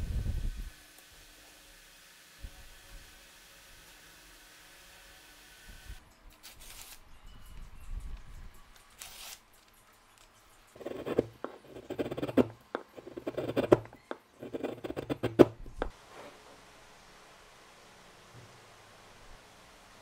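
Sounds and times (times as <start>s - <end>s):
chisel paring wood: 10.8s - 15.6s.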